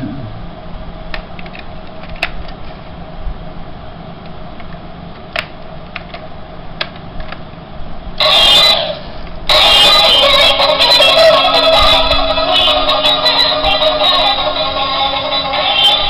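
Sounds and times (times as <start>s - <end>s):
fan-like hum: 0.0s - 16.0s
loud burst of music: 8.2s - 16.0s.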